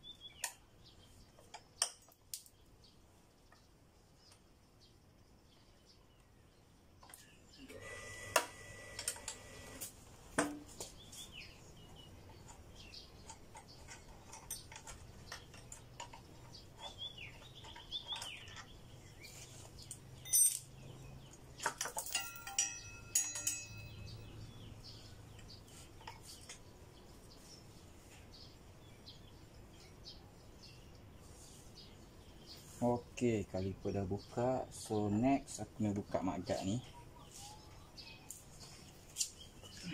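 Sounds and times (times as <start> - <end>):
birds chirping: 0.0 - 9.8, 10.8 - 39.9
metal tools clinking: 13.2 - 18.8, 20.2 - 20.9, 21.6 - 24.3
ringing metallic knocks: 21.9 - 24.3.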